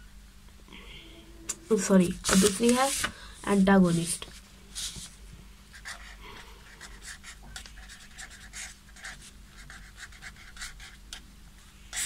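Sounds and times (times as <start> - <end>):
marker pen scratching on paper: 2.2 - 4.2, 5.7 - 11.0.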